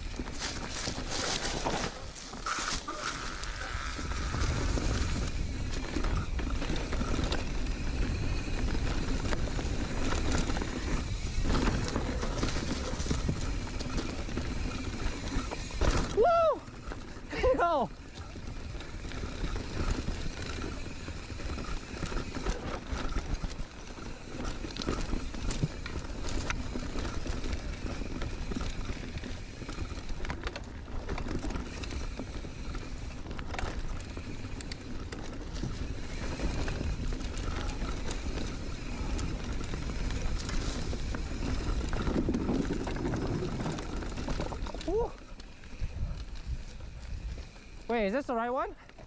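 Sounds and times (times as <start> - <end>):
bike rattles and knocks: 0.0 - 47.7
tyres on leaves and dirt: 0.0 - 49.0.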